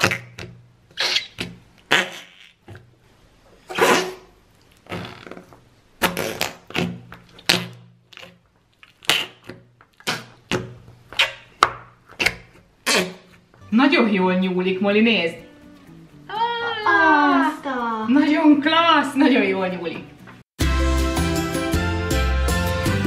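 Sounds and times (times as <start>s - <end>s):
slime squelching: 3.7s - 13.6s.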